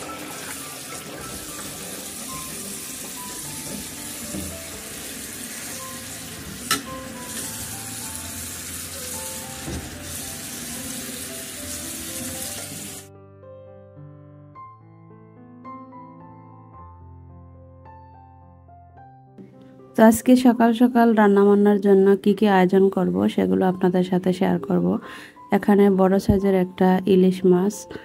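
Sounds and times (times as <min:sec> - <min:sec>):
tap water running into metal pot: 0:00.0 - 0:13.1
soft piano music: 0:00.0 - 0:28.0.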